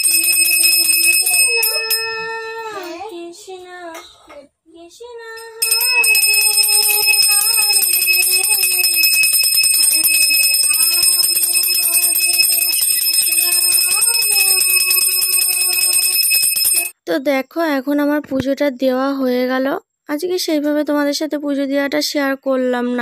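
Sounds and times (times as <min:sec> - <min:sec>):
hand bell ringing: 0:00.0 - 0:02.5, 0:05.6 - 0:16.9
person humming a tune: 0:06.7 - 0:09.0.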